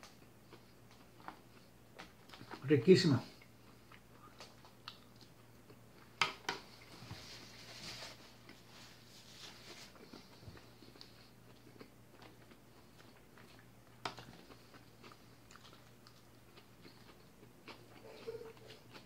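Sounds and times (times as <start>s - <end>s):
person chewing salad: 0.0s - 7.6s, 8.2s - 19.0s
paper napkin rustling: 6.9s - 10.0s.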